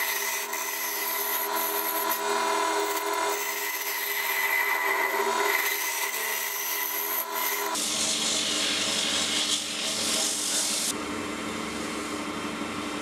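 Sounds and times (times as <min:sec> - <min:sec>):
lathe motor hum: 0:00.0 - 0:07.8.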